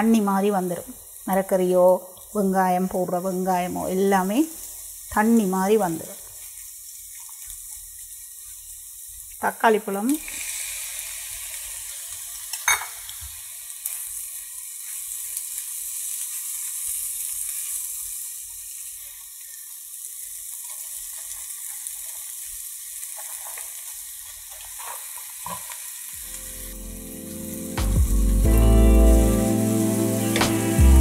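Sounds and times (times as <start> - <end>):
food sizzling in a hot pan: 0.0 - 31.0
music: 26.2 - 31.0.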